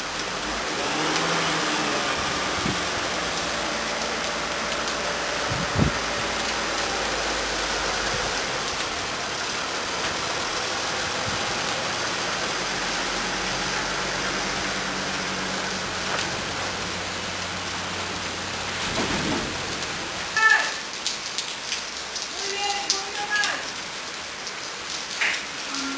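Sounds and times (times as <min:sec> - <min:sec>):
truck engine running low: 0:00.0 - 0:20.2
rain on wet pavement: 0:00.0 - 0:25.9.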